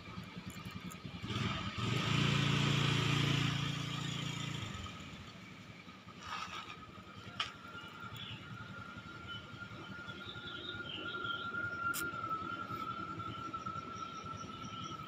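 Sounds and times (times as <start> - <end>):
vehicle engine passing by: 1.2 - 5.3.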